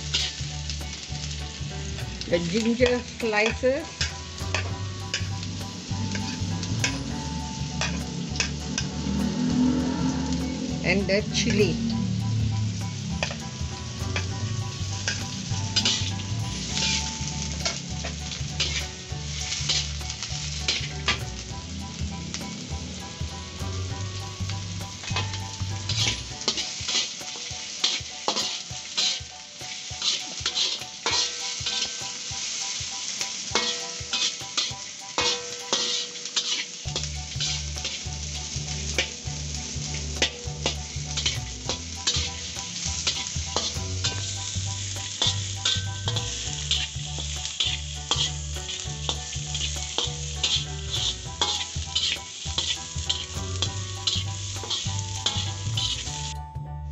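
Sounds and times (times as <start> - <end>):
metal spatula scraping pan: 0.0 - 0.4, 2.3 - 12.0, 12.8 - 21.4, 24.2 - 32.3, 33.5 - 56.4
food sizzling in hot oil: 0.0 - 56.4
low rumble: 4.2 - 26.4.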